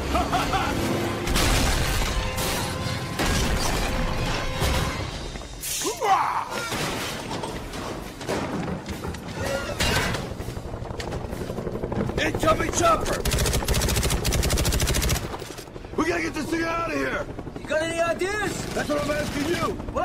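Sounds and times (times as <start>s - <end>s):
dramatic music: 0.0s - 5.9s
crashing and shattering debris: 1.2s - 5.6s, 6.3s - 10.4s.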